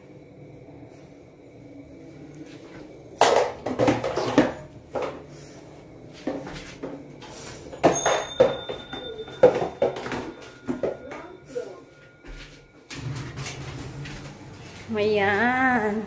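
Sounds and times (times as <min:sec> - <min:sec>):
hard objects clattering and knocking: 0:03.2 - 0:05.4, 0:06.2 - 0:11.4.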